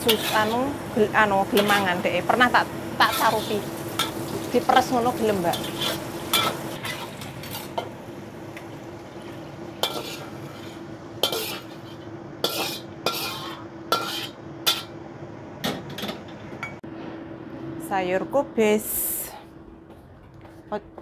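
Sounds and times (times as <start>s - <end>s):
utensils clinking against a pan: 0.0s - 0.7s, 1.5s - 7.9s, 9.8s - 14.9s
steady hum: 0.0s - 21.0s.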